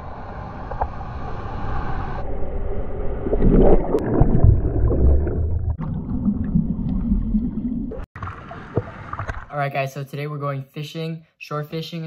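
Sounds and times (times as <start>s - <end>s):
muffled underwater wash: 0.0s - 9.5s.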